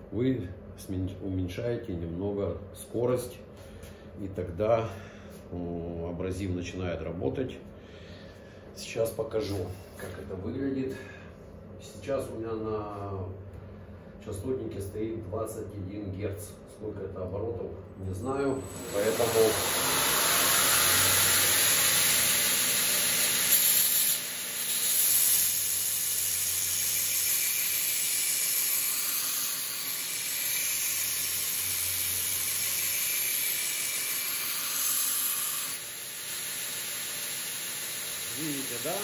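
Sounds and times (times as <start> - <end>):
belt grinder grinding steel: 18.6 - 39.0.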